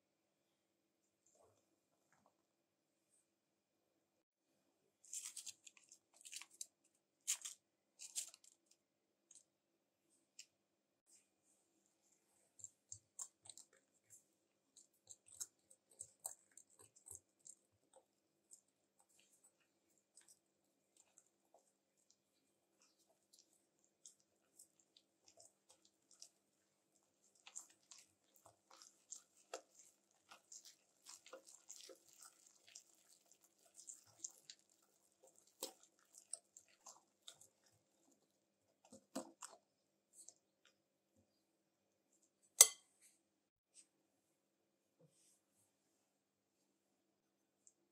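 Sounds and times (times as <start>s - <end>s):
whisk stirring batter in bowl: 12.4s - 40.4s.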